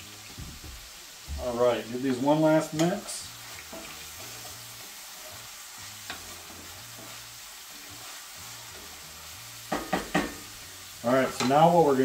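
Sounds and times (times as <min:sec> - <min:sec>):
food sizzling in a skillet: 0:00.0 - 0:12.0
spatula stirring: 0:02.6 - 0:10.5.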